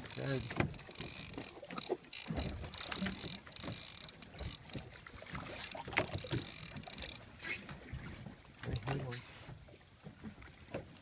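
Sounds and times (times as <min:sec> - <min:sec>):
fishing rod and reel knocks: 0:00.0 - 0:04.9, 0:05.9 - 0:07.2
sea noise: 0:00.0 - 0:11.0
wind: 0:00.0 - 0:11.0.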